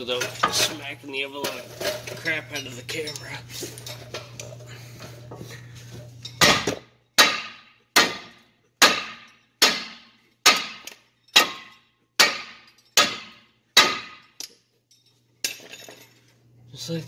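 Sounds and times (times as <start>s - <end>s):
hammer striking metal: 6.3s - 14.5s.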